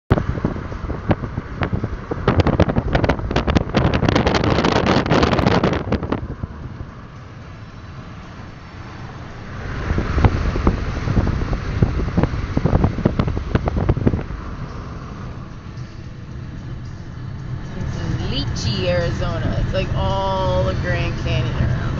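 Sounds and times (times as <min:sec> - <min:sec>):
car road and engine rumble: 0:00.1 - 0:21.9
wind buffeting microphone: 0:00.1 - 0:21.9.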